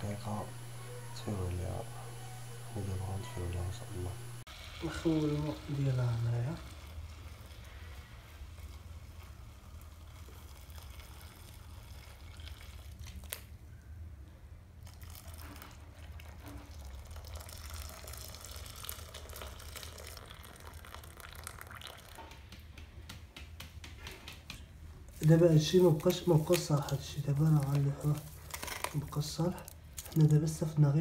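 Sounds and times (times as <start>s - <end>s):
steady low hum: 0.0s - 4.5s
water poured through strainer: 4.5s - 13.4s, 14.8s - 22.4s.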